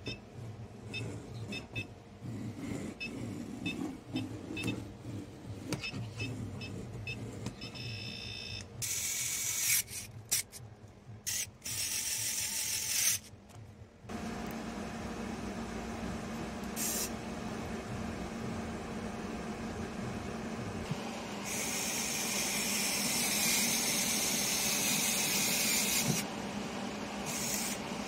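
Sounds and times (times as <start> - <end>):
steady hum: 13.4 - 28.0.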